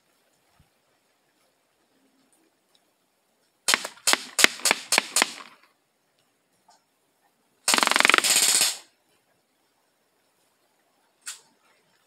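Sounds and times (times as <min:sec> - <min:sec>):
bb gun shots: 0:03.7 - 0:05.6, 0:07.7 - 0:08.8
full-auto bb gun burst: 0:03.7 - 0:05.6, 0:07.7 - 0:08.9.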